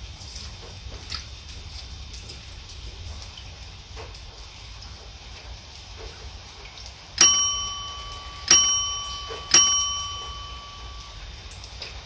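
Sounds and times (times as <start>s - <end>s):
rain hissing: 0.0s - 12.0s
bright bell dings: 7.2s - 11.3s.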